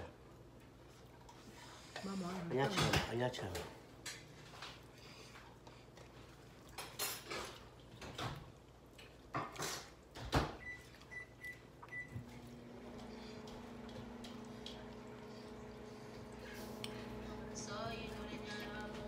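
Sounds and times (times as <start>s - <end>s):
kitchenware clicks and knocks: 2.6s - 3.7s
microwave oven humming: 10.3s - 19.0s.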